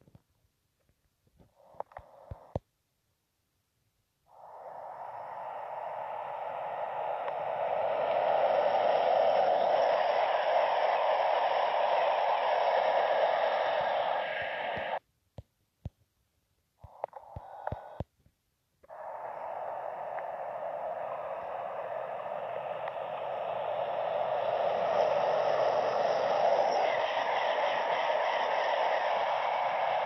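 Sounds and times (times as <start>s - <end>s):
train wheels on rails: 4.6s - 15.0s, 18.9s - 30.0s.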